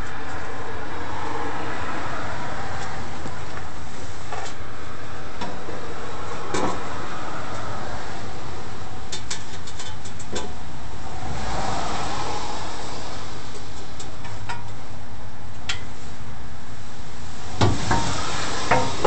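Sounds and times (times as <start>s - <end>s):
loud rushing noise: 10.6s - 15.1s, 16.8s - 19.0s.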